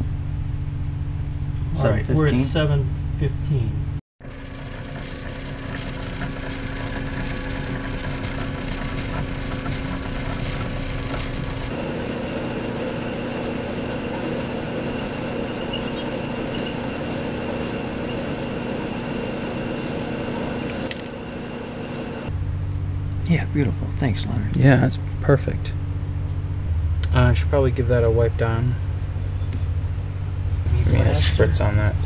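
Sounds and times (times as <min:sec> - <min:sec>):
metal lathe turning aluminum: 0:04.2 - 0:22.3
drill press motor humming: 0:04.2 - 0:22.4.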